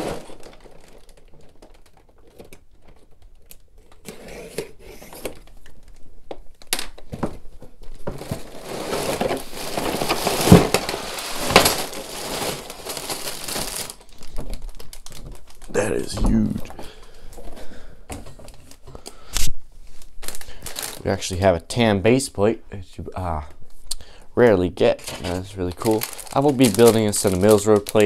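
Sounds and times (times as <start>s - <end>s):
plastic bags rustling: 0.0s - 3.4s, 7.0s - 21.8s, 24.8s - 28.0s.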